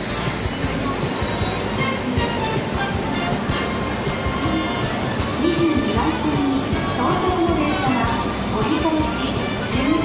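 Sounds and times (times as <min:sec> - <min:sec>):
music playing: 0:00.0 - 0:10.0
train rolling slowly: 0:00.0 - 0:10.0.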